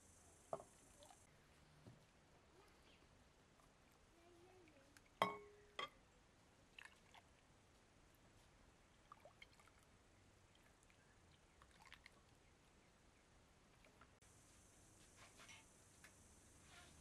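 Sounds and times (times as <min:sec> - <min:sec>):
sharp clink with ringing tone: 0:05.2 - 0:06.0.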